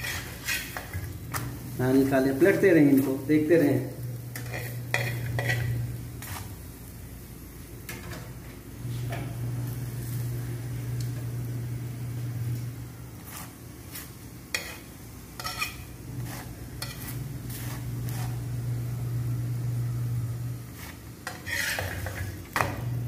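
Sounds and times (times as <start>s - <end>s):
spatula scraping and tapping pan: 0.0s - 1.7s, 4.3s - 6.6s, 13.2s - 18.5s, 20.7s - 22.8s
steady low hum: 0.0s - 21.3s.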